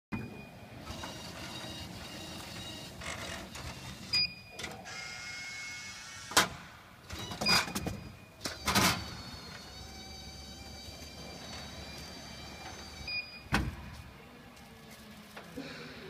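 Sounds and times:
vending machine motor whirr: 8.5 - 13.3.

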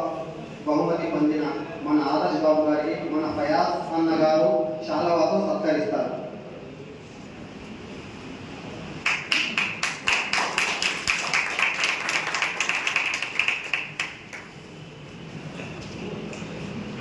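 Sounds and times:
people clapping: 9.0 - 14.8.

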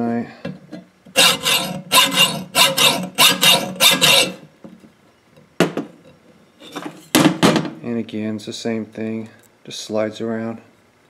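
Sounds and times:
hacksaw rasping on steel: 1.2 - 4.4.

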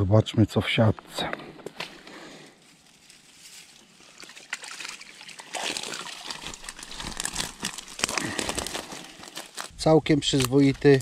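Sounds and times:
water streaming from a net: 4.0 - 9.1.

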